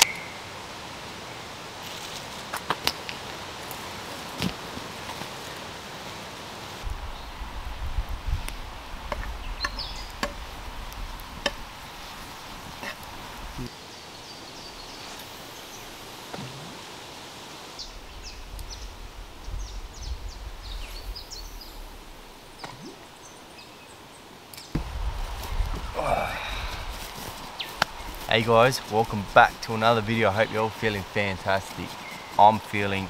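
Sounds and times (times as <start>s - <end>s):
wind buffeting microphone: 6.8s - 13.7s, 17.8s - 22.9s, 24.8s - 33.0s.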